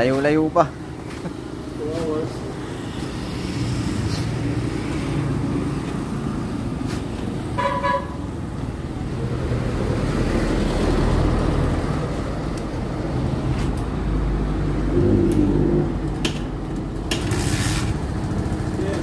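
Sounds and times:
street traffic: 0.0 - 19.0.

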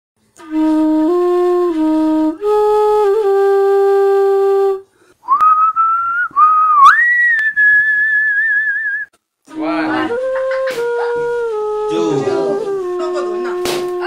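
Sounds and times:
flute playing low notes: 0.4 - 14.0
rising whistle: 5.2 - 9.2.

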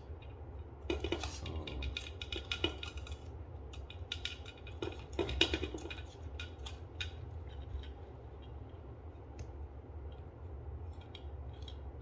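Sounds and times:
plastic parts clicking and rattling: 0.2 - 8.6.

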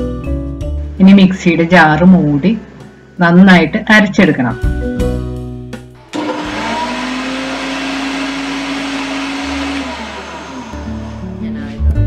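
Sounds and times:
electric blender grinding: 6.1 - 11.4.

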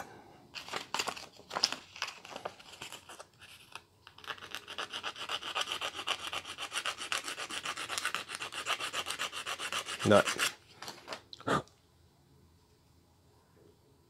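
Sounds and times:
sanding on sandpaper: 4.7 - 10.6.

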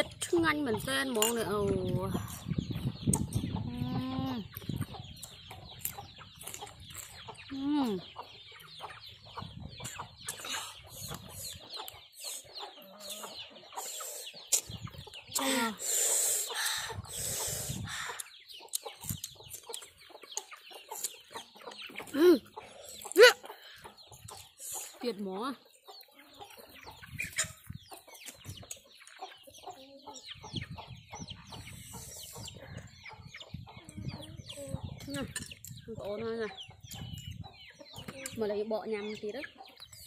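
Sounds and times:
chickens clucking: 0.0 - 40.0
people chewing: 4.5 - 7.3, 13.8 - 25.0, 28.2 - 29.4.

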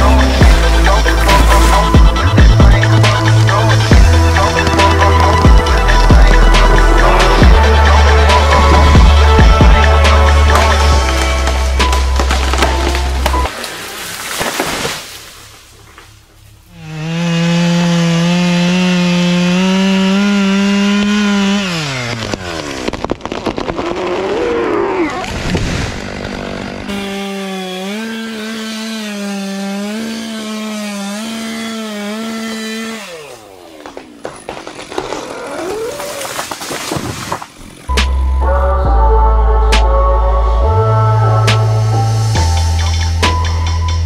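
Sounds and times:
chainsaw at full throttle: 0.0 - 13.4, 16.7 - 36.1.

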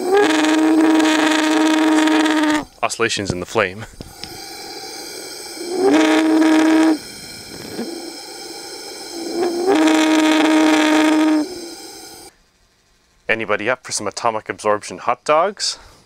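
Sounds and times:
loud humming flame tone: 0.0 - 12.3
gas burner hissing: 0.0 - 12.4.

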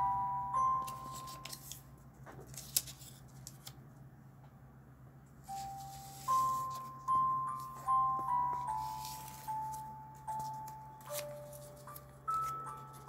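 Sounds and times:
chiming bell-like music: 0.0 - 1.5, 5.5 - 13.0
paper rustling and creasing: 0.8 - 3.8, 5.5 - 13.0.

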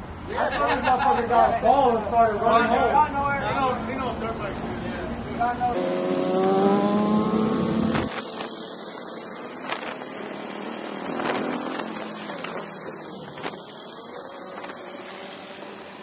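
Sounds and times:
road noise: 0.0 - 16.0
motorcycle engine revving: 5.6 - 16.0.

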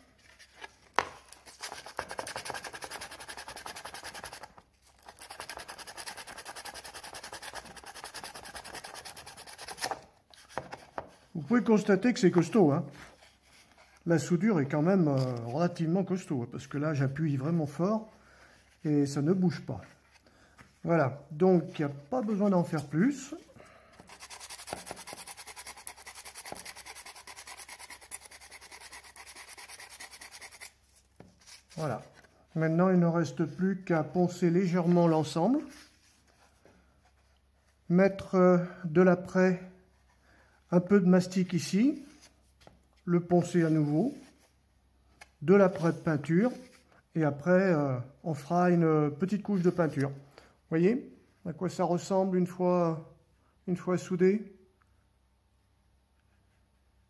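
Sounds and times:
sandpaper rubbing on plastic: 1.4 - 10.0, 24.1 - 31.8.

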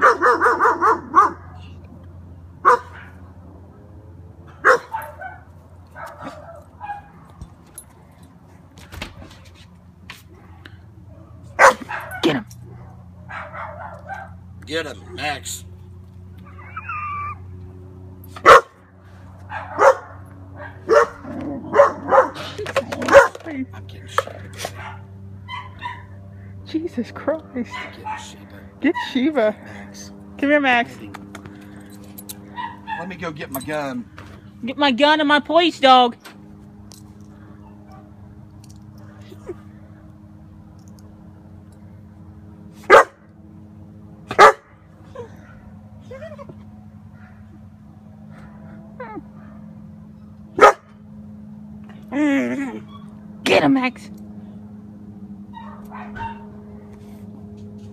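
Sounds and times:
puppy barking: 0.0 - 1.7, 2.6 - 3.2, 4.6 - 7.4, 11.1 - 14.4, 18.4 - 18.8, 19.5 - 23.5, 24.6 - 26.2, 27.7 - 29.2, 32.5 - 33.2, 42.8 - 43.2, 44.3 - 44.7, 50.6 - 50.9, 55.5 - 56.5
puppy whining: 16.4 - 17.5, 45.1 - 46.6, 49.0 - 49.3, 55.5 - 56.5.

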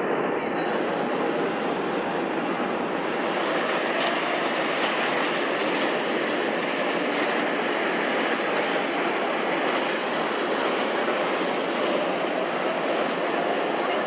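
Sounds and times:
jet engines rushing: 0.0 - 14.0.

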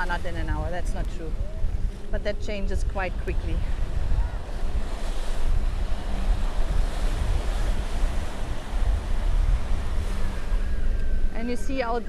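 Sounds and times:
ocean surf breaking: 0.0 - 12.0
wind rumbling on microphone: 0.0 - 12.0.

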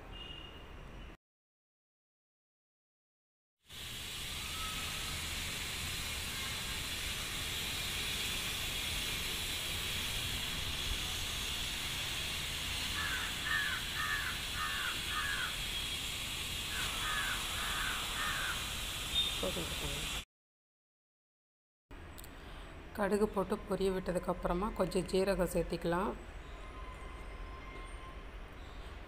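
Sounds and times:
bird calling: 13.0 - 15.6, 16.7 - 19.4.

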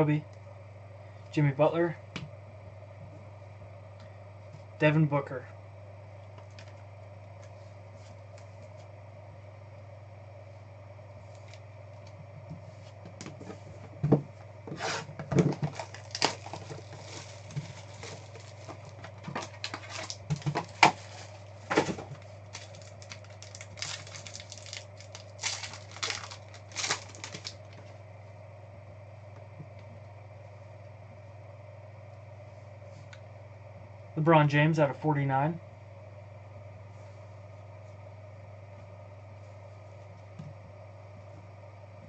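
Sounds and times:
steady low hum: 0.0 - 42.0
foil wrapper tearing and crinkling: 15.4 - 27.8.

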